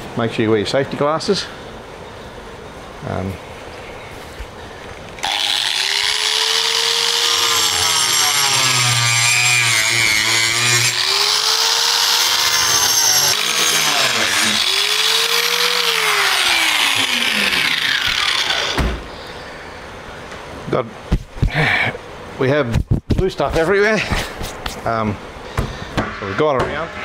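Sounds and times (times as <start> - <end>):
angle grinder cutting plastic: 5.2 - 18.9.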